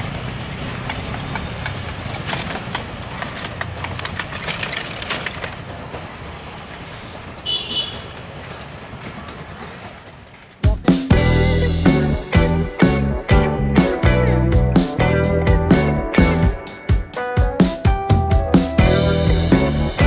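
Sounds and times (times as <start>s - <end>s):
wheels clattering over rail joints: 0.0s - 11.1s
train rumbling: 0.0s - 13.0s.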